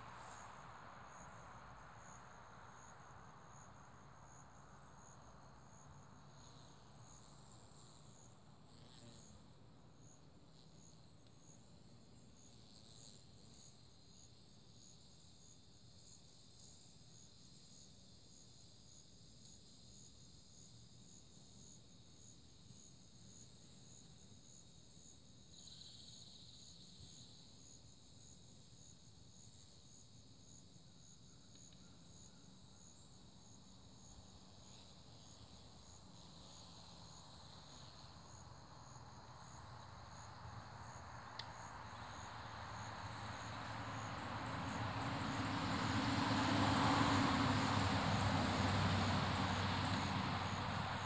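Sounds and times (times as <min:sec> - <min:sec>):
insects trilling: 0:28.2 - 0:51.0
vehicle engine approaching: 0:42.3 - 0:51.0.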